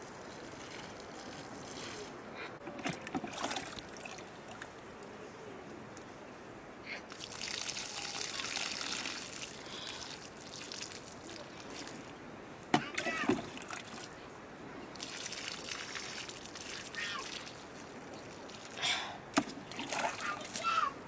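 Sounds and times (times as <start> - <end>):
water pouring onto soil: 0.0 - 4.8, 7.1 - 12.2, 14.9 - 18.8, 19.4 - 20.9.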